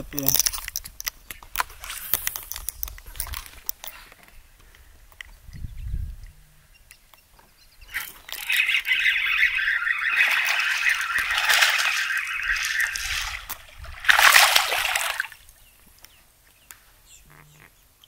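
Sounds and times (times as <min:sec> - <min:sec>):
fish thrashing and splashing: 0:07.9 - 0:15.4.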